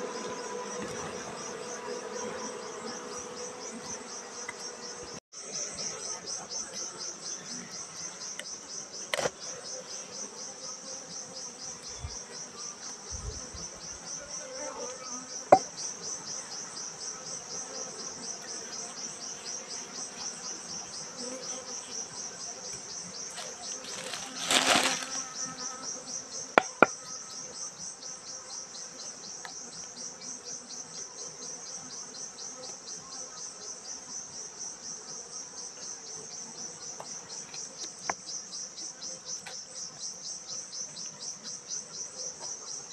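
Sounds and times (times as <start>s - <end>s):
insects chirping: 0.0s - 42.9s.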